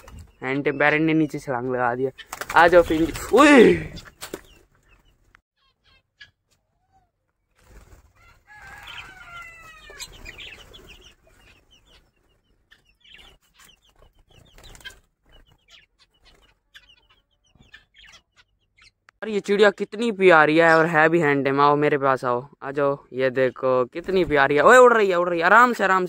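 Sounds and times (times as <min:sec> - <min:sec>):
chicken calling: 0:00.0 - 0:19.8
small cage birds chirping: 0:00.0 - 0:26.0.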